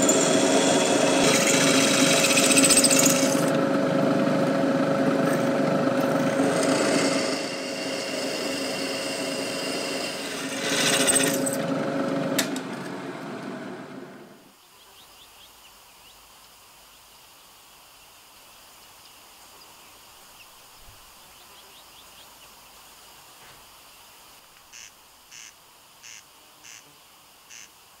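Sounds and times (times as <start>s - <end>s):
drill press boring steel: 0.0s - 14.3s.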